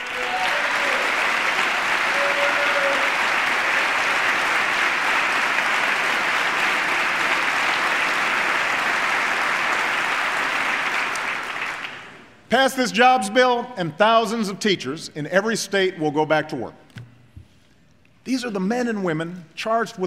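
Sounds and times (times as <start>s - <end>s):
large audience applauding: 0.0s - 12.3s.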